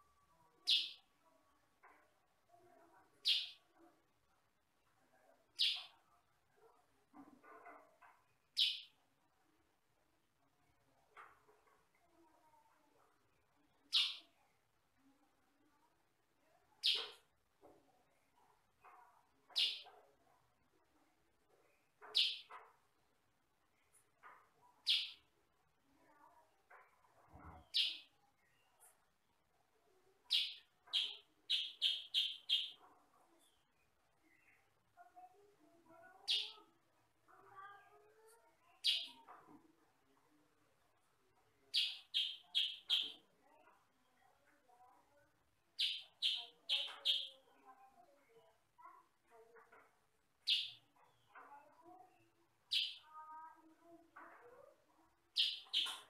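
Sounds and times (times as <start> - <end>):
soft low bird chatter: 0.0 - 56.0
bulbul chirping: 30.3 - 32.8.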